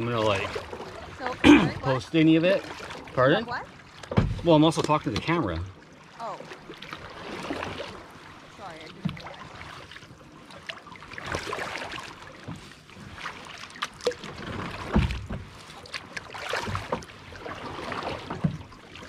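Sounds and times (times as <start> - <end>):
kayak paddle splashing water: 0.0 - 19.0
low thump: 4.1 - 4.6.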